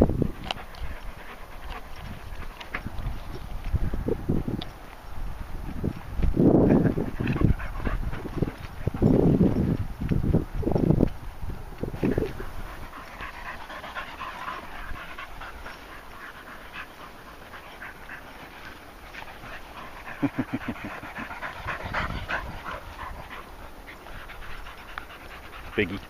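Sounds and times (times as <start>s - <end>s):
rustling through long grass: 0.0s - 25.8s
dogs panting: 0.0s - 26.0s.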